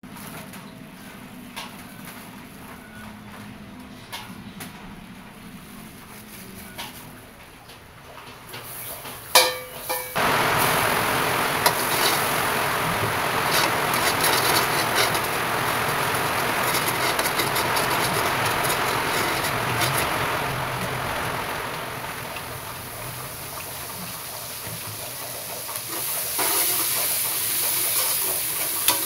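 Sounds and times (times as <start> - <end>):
garlic sizzling in a wok: 8.7 - 29.0
loud ringing clatter: 9.4 - 24.0.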